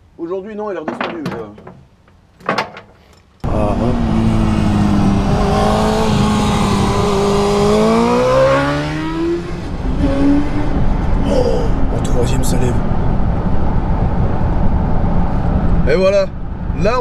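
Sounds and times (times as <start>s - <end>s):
motorcycle engine accelerating hard: 3.5s - 11.1s.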